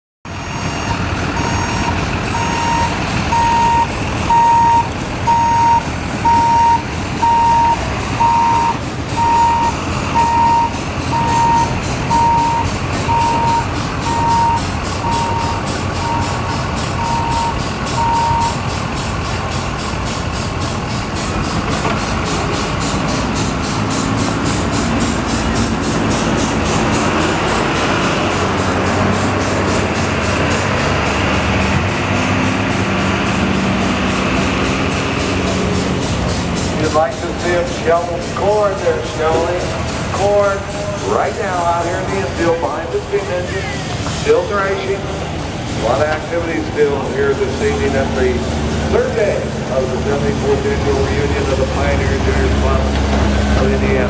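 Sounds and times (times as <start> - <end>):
steam traction engine running: 0.3 - 54.0
reversing alarm beeping: 0.4 - 18.7.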